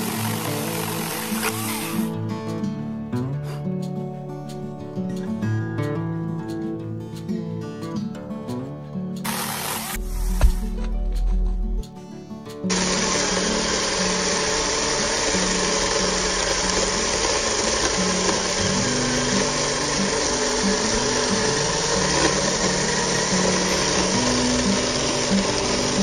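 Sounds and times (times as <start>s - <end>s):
mini chainsaw cutting log: 0.0s - 2.2s, 9.2s - 10.4s, 12.7s - 26.0s.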